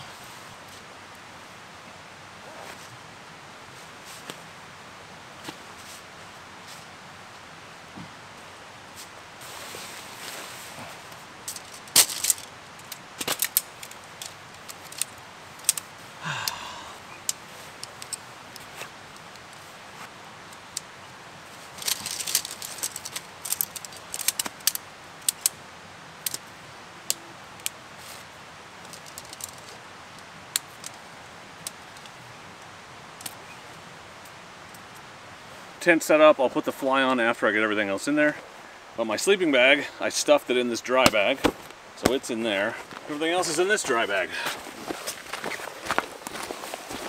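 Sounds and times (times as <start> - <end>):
tent poles and clips clicking: 10.2 - 25.6, 26.2 - 33.6, 42.8 - 47.0.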